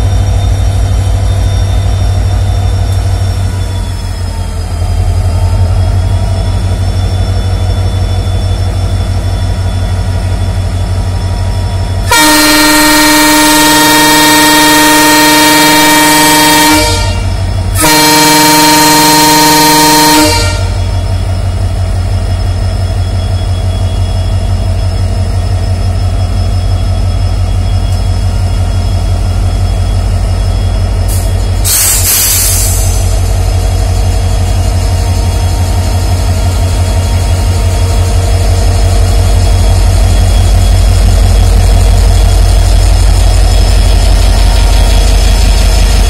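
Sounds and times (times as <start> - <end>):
diesel locomotive engine throbbing: 0.0 - 46.0
hiss burst: 31.1 - 33.1.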